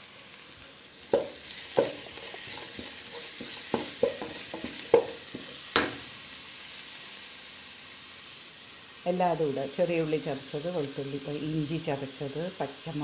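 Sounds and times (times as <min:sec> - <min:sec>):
onions sizzling in oil: 0:00.0 - 0:13.0
wooden spatula knocking a pan: 0:01.1 - 0:06.1.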